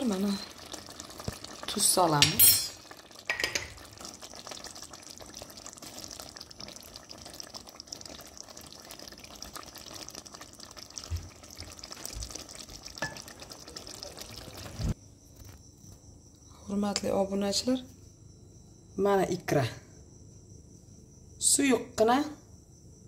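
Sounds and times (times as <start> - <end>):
stew bubbling and squelching: 0.0 - 15.0.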